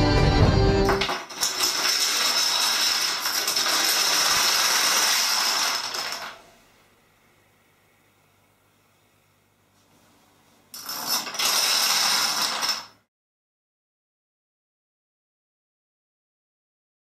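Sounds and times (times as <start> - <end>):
background music: 0.0 - 1.2
dense clatter of falling tiles: 0.9 - 6.4, 10.8 - 13.0.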